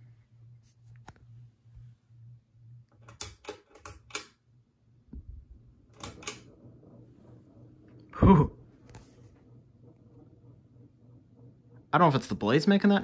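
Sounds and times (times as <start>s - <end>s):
faint fan motor hum: 0.0s - 13.0s
fan pull-chain switch clicking: 3.0s - 4.4s, 5.9s - 6.5s.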